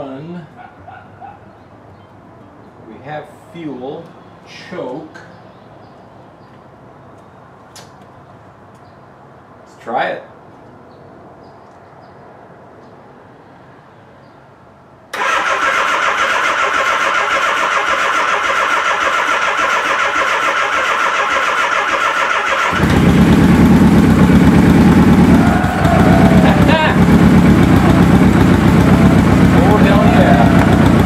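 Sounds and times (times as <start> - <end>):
electric starter cranking engine: 15.2 - 31.0
motorcycle engine running: 22.6 - 31.0.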